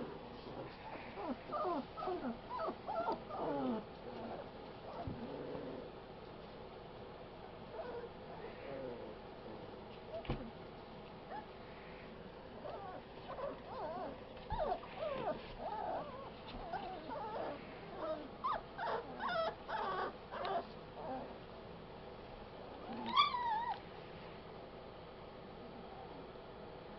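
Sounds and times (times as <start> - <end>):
puppies yipping and whining: 0.9 - 5.2, 7.7 - 8.2, 12.6 - 21.4, 22.8 - 23.8
puppy drawn-out cry: 7.7 - 8.5, 12.6 - 21.3, 22.9 - 23.8.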